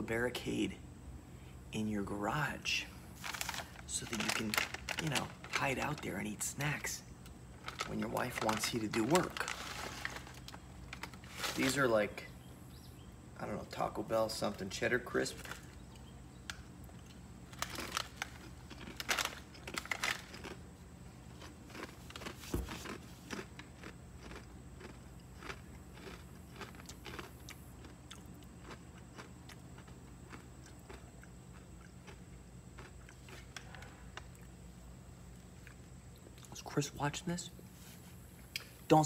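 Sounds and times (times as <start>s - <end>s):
person chewing crunchy crisps: 3.1s - 6.8s, 7.6s - 11.8s, 15.4s - 36.6s.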